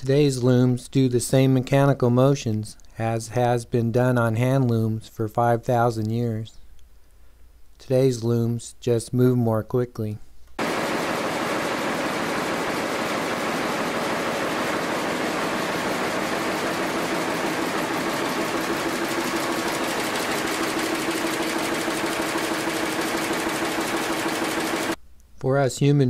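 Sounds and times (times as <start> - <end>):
power loom clattering: 10.6 - 25.0
steady hum: 10.6 - 25.0.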